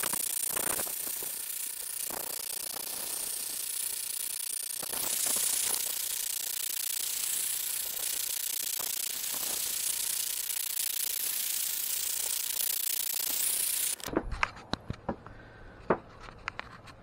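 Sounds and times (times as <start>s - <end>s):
clicks and knocks on wood: 14.1s - 17.0s.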